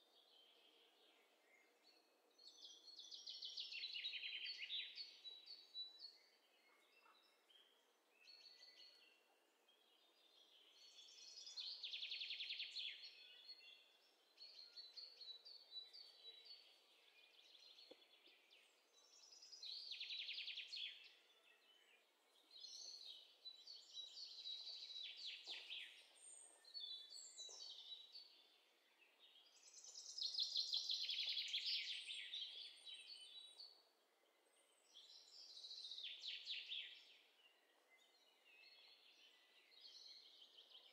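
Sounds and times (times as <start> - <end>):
songbirds chirping: 0.0 - 40.9.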